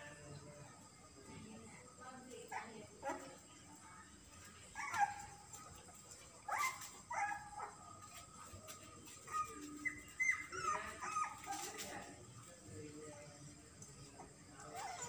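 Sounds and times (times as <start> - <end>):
puppies whimpering and yelping: 4.7 - 7.7, 9.0 - 11.9.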